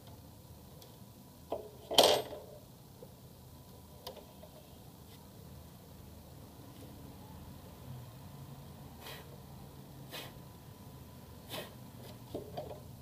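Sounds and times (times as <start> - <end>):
small metal part clattering: 1.5 - 2.5.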